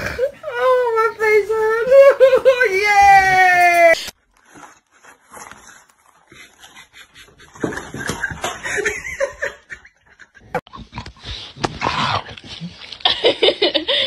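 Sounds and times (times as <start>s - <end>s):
rustling: 3.9s - 8.5s.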